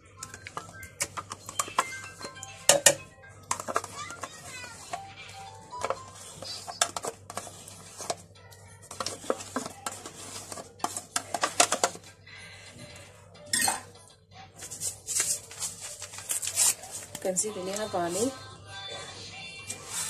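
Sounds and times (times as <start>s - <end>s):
dishes and cutlery clinking: 1.0s - 5.1s, 12.9s - 14.0s.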